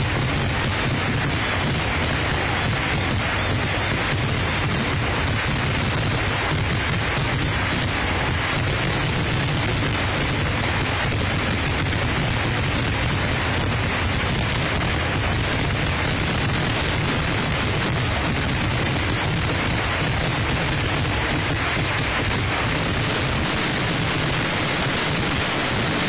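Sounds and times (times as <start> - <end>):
fireworks explosions: 0.0 - 26.0.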